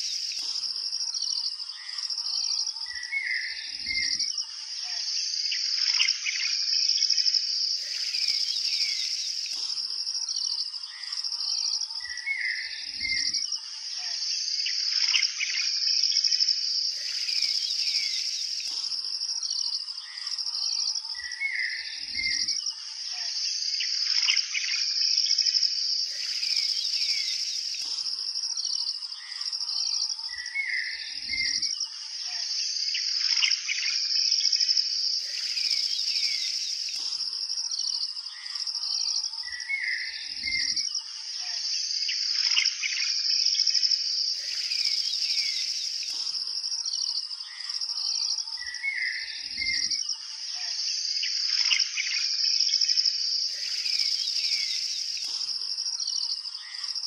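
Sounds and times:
birds chirping: 0.0 - 0.7, 7.8 - 11.1, 16.8 - 22.4, 26.0 - 31.6, 35.2 - 38.5, 44.3 - 49.9, 53.5 - 57.0
high insect drone: 0.0 - 57.0.

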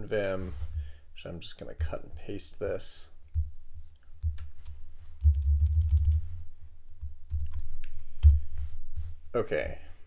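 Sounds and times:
dull low thumps: 3.3 - 4.6, 5.2 - 6.4
keyboard keys clicking: 5.2 - 6.2.

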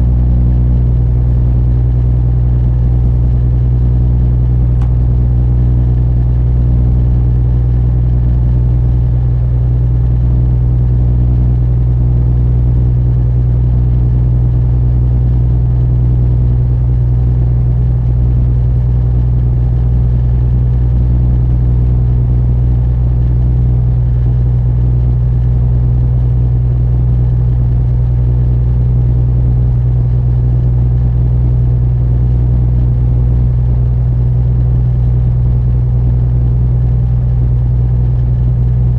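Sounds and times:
boat diesel engine droning: 0.0 - 38.9.

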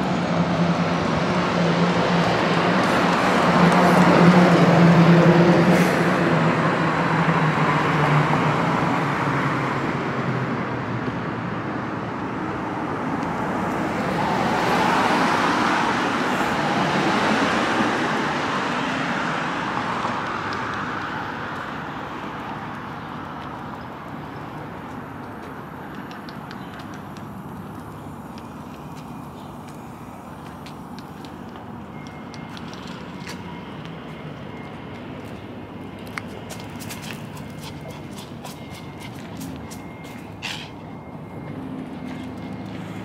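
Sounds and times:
vehicle passing: 0.0 - 10.9, 27.2 - 43.0
bus engine hum: 0.0 - 43.0
street traffic noise: 0.0 - 43.0.

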